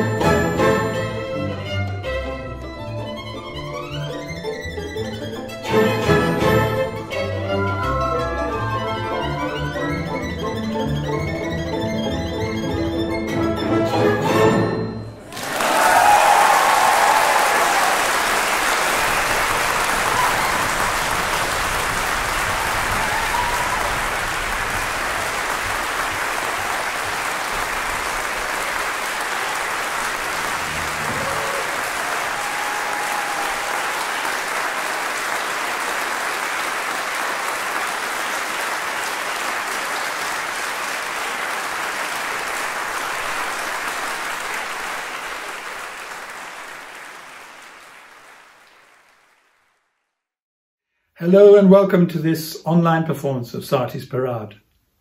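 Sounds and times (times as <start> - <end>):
audience applauding: 15.2 - 49.9.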